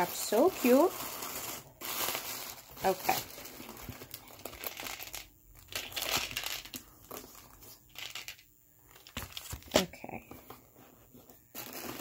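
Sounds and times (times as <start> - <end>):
gift wrapping crinkling: 0.0 - 10.0, 11.4 - 12.0.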